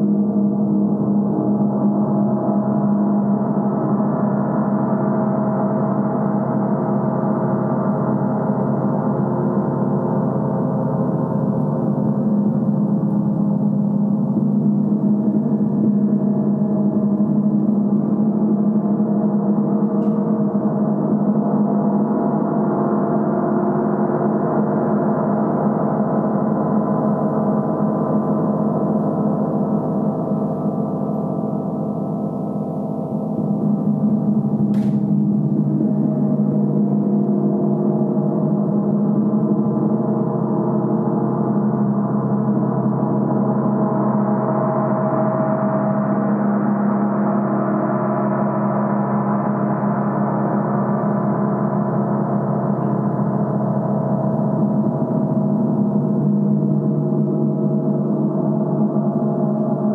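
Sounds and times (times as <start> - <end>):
large gong resonating: 29.8 - 40.6.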